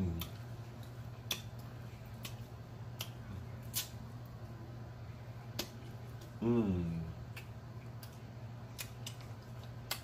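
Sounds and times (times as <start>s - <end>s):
low steady hum: 0.0s - 10.0s
wet mouth smacks: 0.2s - 4.0s, 7.3s - 10.0s.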